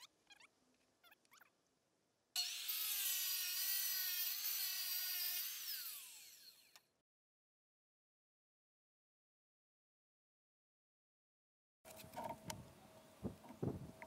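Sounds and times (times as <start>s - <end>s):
tile saw whining: 2.4s - 7.0s.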